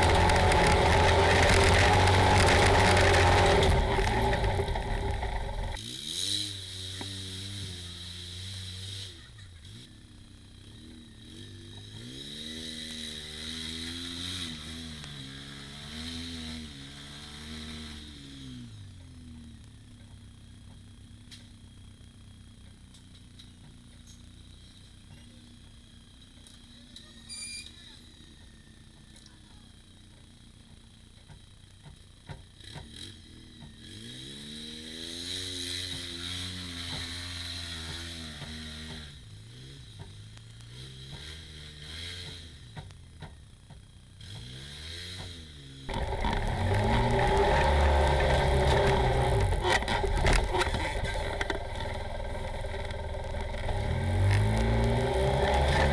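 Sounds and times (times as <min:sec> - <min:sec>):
steady high whine: 0:00.0 - 0:05.8, 0:45.9 - 0:55.9
vehicle engine revving: 0:00.0 - 0:18.9, 0:32.6 - 0:42.9, 0:44.2 - 0:55.9.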